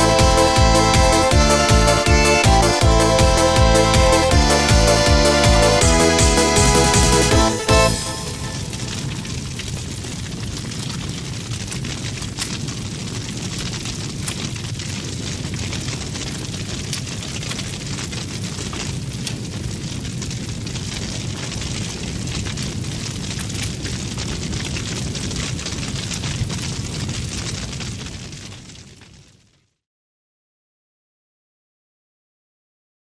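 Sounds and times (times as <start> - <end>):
fire crackles and pops: 8.0 - 29.7
roar of bonfire flames: 9.2 - 29.6.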